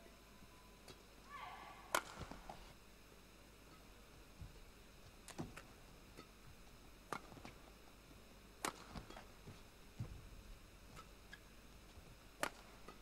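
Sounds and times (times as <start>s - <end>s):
rackets striking shuttlecock: 1.8s - 2.6s, 7.1s - 7.6s, 8.6s - 9.4s, 12.4s - 13.0s.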